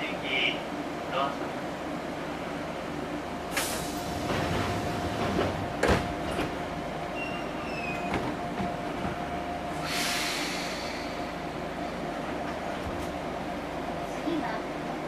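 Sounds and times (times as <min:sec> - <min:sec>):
train cab hum: 0:00.0 - 0:15.0
air hiss: 0:09.8 - 0:11.4.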